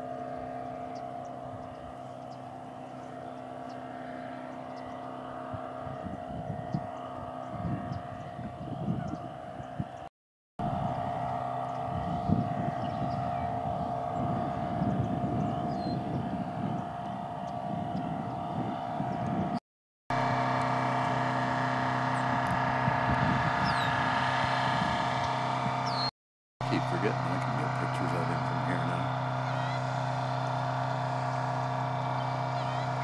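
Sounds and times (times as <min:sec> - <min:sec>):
steady engine hum: 0:00.0 - 0:33.0
wind rumbling on microphone: 0:04.7 - 0:19.6, 0:21.0 - 0:26.1
faint high bird chirps: 0:25.8 - 0:26.1.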